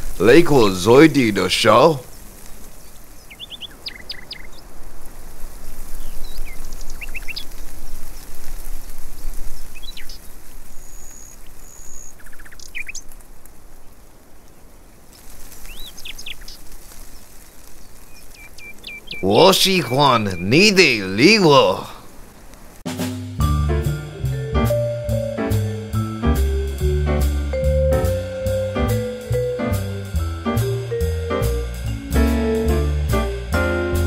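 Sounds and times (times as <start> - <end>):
small birds chirping: 0.0 - 22.8
outdoor background hiss: 0.0 - 34.0.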